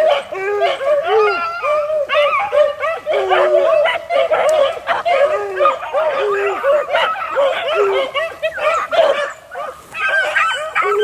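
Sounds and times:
dogs baying: 0.0 - 11.0.

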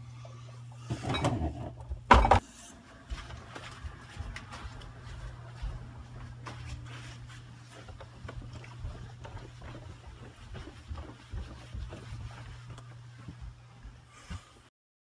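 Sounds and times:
steady low hum: 0.0 - 14.6
footsteps: 2.7 - 14.7.

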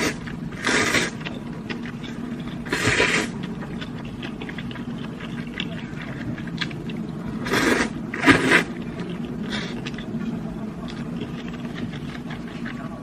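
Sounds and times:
noodles being slurped: 0.0 - 1.4, 2.0 - 3.5, 7.4 - 10.1.

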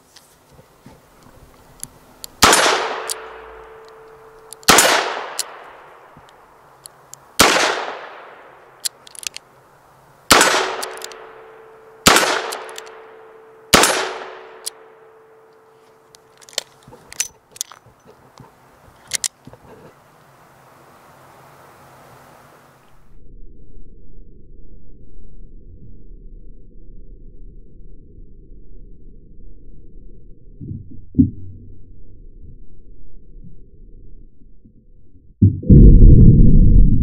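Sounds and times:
revolver cylinder clicks: 1.8 - 9.5, 10.3 - 19.4
revolver shots echoing: 2.4 - 5.9, 7.4 - 8.8, 10.3 - 15.7.

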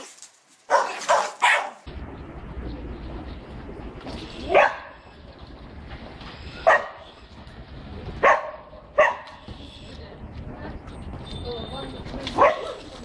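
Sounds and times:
dog barking: 0.7 - 1.8, 4.5 - 5.0, 6.6 - 7.0, 8.2 - 9.4, 12.4 - 12.9.

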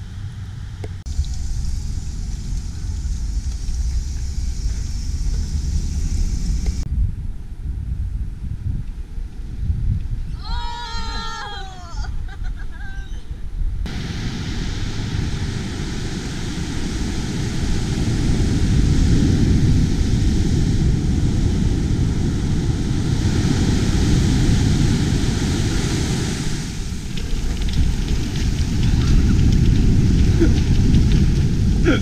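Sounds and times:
wind buffeting microphone: 0.0 - 32.0
surf breaking on beach: 13.9 - 32.0.

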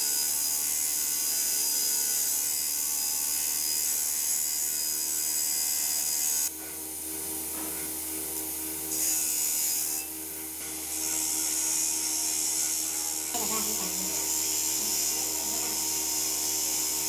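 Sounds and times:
grinder motor hum: 0.0 - 17.0.

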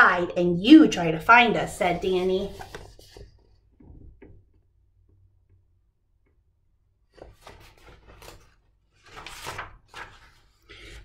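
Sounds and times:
book pages rustling: 1.8 - 3.7, 7.1 - 11.0.

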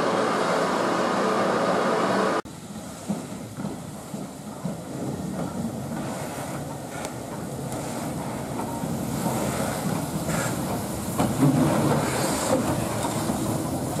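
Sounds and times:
steam locomotive rumbling: 0.0 - 14.0
wheels knocking over rail joints: 8.5 - 14.0.

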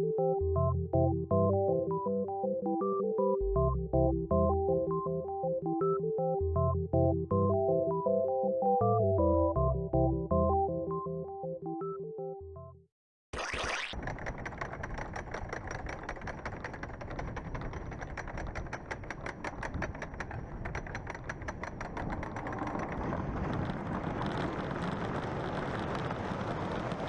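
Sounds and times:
motor rumbling: 13.4 - 27.0.

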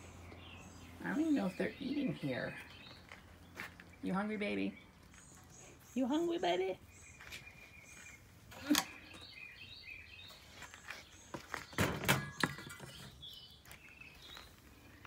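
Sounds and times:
birds chirping: 0.0 - 15.0
sharp knocks and clatters: 11.6 - 13.2.

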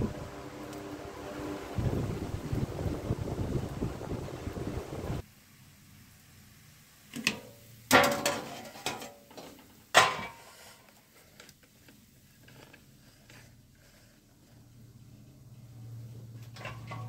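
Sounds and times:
metal cookware clanking: 7.2 - 10.6, 16.4 - 17.0.

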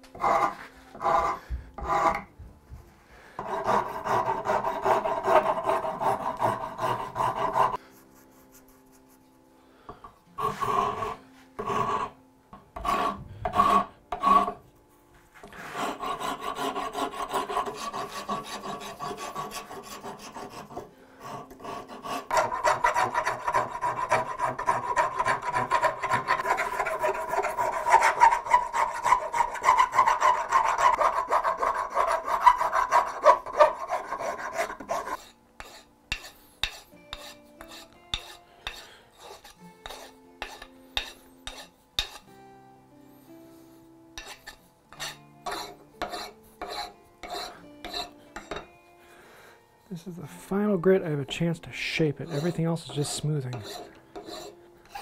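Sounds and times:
rasp stroking wood: 0.1 - 2.3, 3.4 - 7.8, 10.4 - 12.2, 12.8 - 14.6, 15.5 - 42.2, 44.2 - 48.1, 52.2 - 55.0.

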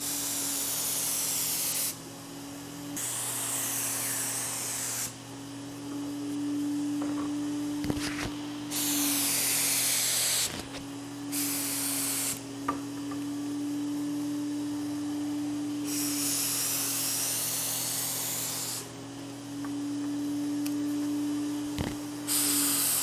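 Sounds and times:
spray gun hissing: 0.0 - 2.0, 2.9 - 5.2, 8.0 - 10.6, 11.3 - 12.4, 15.8 - 19.0, 22.2 - 23.0.

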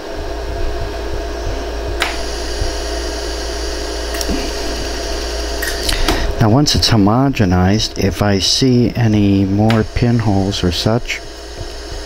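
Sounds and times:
machine hum: 0.0 - 12.0
laser pulse snap: 1.9 - 6.3, 9.6 - 10.0.

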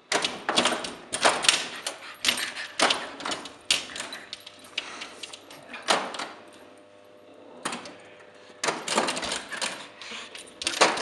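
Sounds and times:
dog paws scrabbling on glass: 0.2 - 6.2
pinball flippers clacking: 10.4 - 11.0.

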